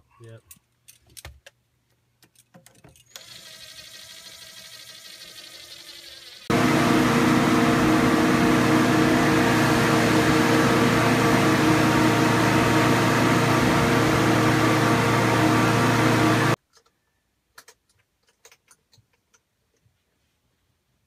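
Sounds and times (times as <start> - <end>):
boat lift engine humming: 6.5 - 16.6.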